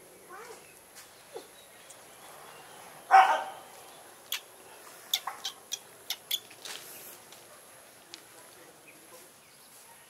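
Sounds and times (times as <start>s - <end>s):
dog bark: 3.1s - 3.6s.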